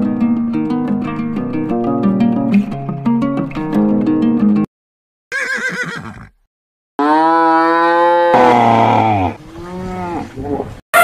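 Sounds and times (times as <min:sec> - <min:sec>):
cow mooing: 0:07.0 - 0:11.0.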